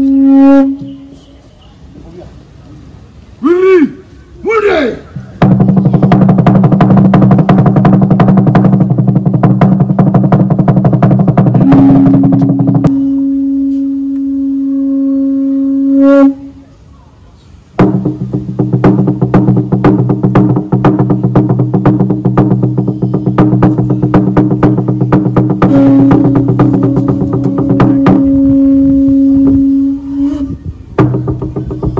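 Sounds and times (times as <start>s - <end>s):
wooden slit drum beating: 5.2s - 13.2s, 17.8s - 30.4s, 31.0s - 31.9s.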